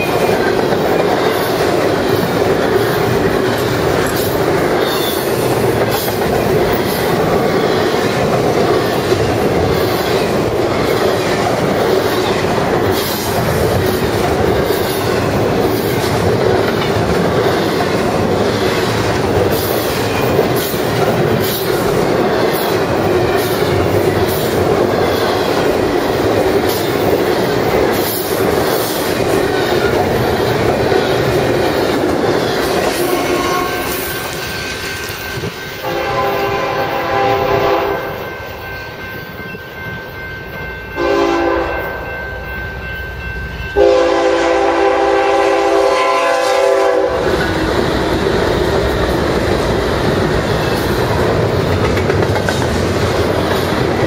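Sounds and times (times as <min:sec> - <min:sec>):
freight train rumble and wheel clatter: 0:00.0 - 0:54.0
locomotive air horn blasts: 0:33.0 - 0:34.0, 0:35.8 - 0:38.2, 0:41.0 - 0:42.0, 0:43.8 - 0:47.3.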